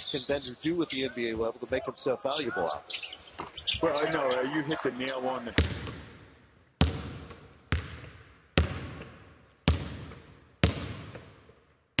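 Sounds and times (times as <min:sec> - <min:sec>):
basketball bouncing on hard floor: 0:05.6 - 0:06.2, 0:06.8 - 0:11.6.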